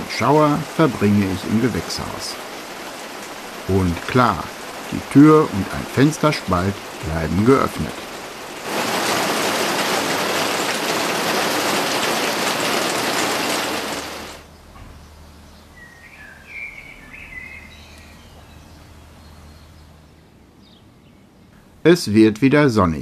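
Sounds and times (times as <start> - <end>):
heavy rain on plastic roof: 0.0 - 14.5
bird chirping: 14.4 - 21.8.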